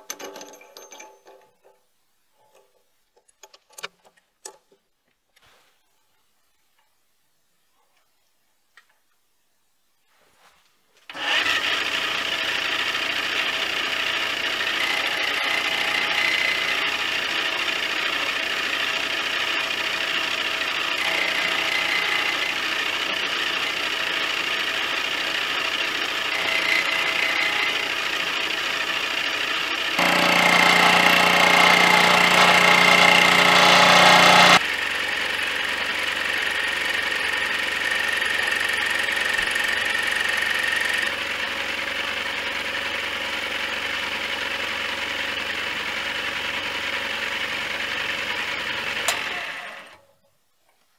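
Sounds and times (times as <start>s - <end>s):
lathe cutting metal: 11.2s - 34.6s
lathe motor and gear whine: 13.2s - 41.3s.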